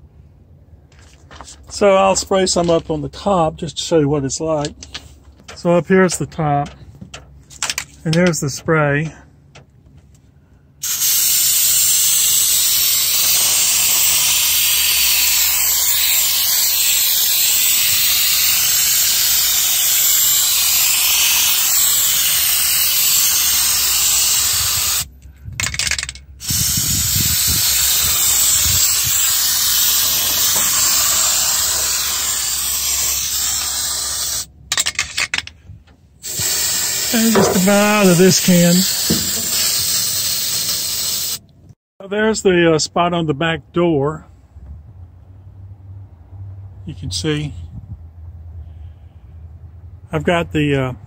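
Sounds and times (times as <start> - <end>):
aerosol can spraying: 10.8 - 25.1, 26.4 - 34.5, 36.2 - 41.4.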